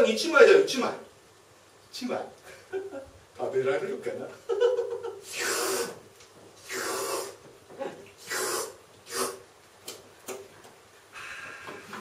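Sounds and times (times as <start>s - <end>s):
man slurping: 5.2s - 6.0s, 6.6s - 7.4s, 8.2s - 9.5s.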